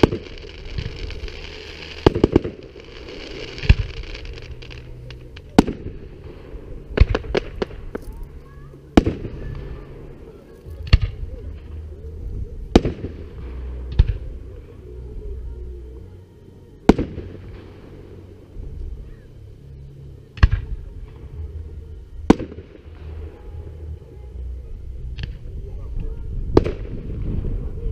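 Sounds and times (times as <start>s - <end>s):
firework shells bursting: 0.0s - 6.3s.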